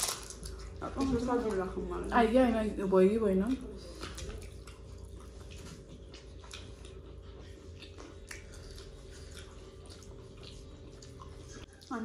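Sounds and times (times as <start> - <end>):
steady low hum: 0.0 - 12.0
fingers mixing food on plates: 3.3 - 12.0
mouths chewing: 3.5 - 12.0.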